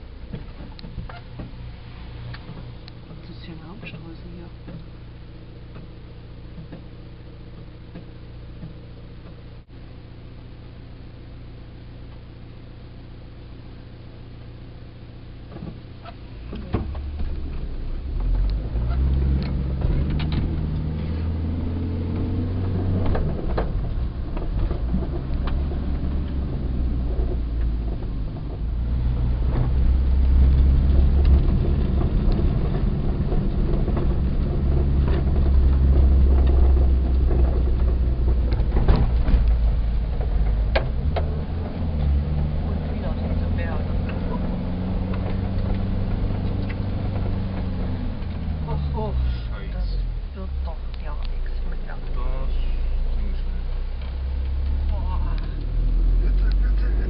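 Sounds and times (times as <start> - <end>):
bus engine droning: 0.0 - 11.9, 12.5 - 57.0
cab clicks and rattles: 15.5 - 21.0.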